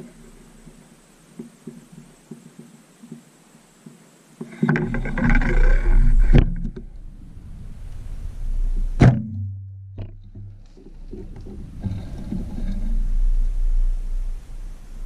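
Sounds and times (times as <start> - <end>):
wind and handling rumble: 0.0 - 15.0
sharp knock: 9.0 - 10.5.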